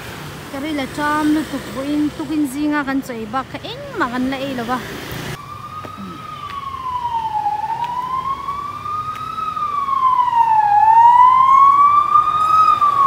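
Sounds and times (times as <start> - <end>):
siren wailing: 5.3 - 13.0.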